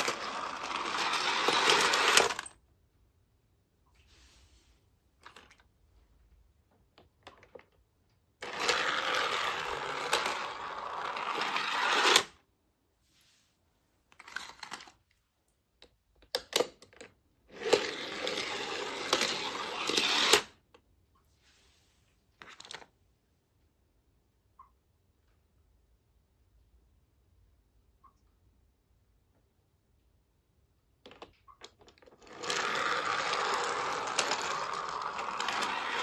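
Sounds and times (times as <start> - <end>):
toy cars rattling down plastic track: 0.0 - 2.5, 8.4 - 12.4, 17.5 - 20.6, 32.0 - 36.0.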